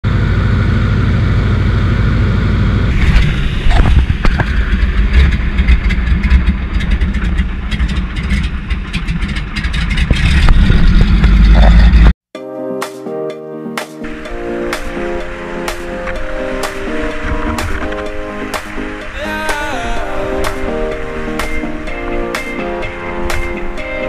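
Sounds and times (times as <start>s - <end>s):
plane engine and propeller: 0.0s - 12.1s, 14.0s - 24.0s
water spray slapping floats: 14.0s - 24.0s.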